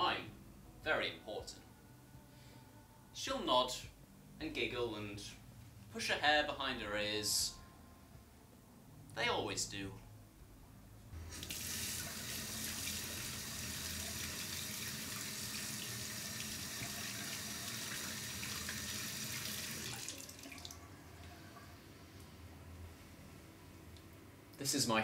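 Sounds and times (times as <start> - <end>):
tap water splashing into basin: 14.2 - 20.8.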